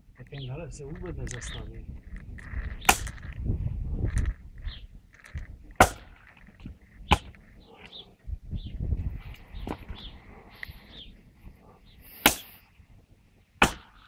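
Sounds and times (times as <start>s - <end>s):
blade chopping firewood: 2.8s - 3.2s, 5.7s - 7.4s, 12.2s - 12.6s, 13.6s - 14.0s.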